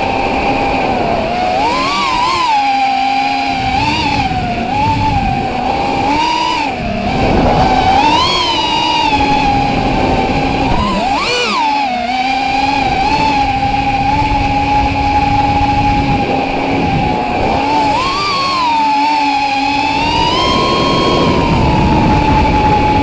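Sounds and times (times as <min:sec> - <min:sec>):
quadcopter motors whining: 0:00.0 - 0:23.0
rushing air: 0:03.3 - 0:11.7, 0:12.4 - 0:23.0.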